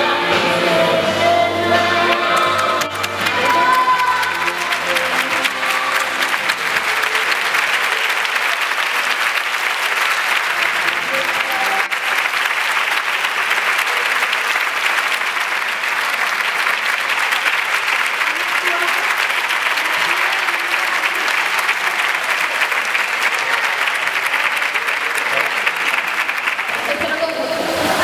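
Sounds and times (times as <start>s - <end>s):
music: 0.0s - 7.6s
audience applauding: 1.9s - 28.0s.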